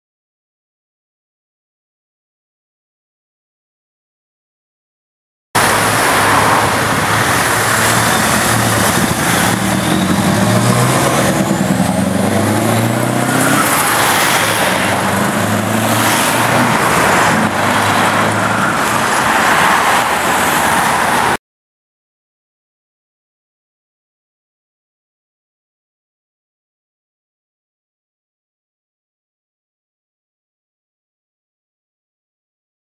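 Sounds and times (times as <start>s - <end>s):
diesel truck engine accelerating: 5.6s - 21.4s.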